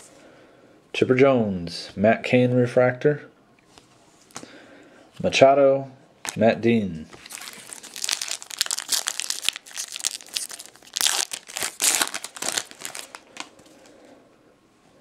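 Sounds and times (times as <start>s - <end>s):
foil wrapper crinkling and tearing: 7.2s - 13.9s.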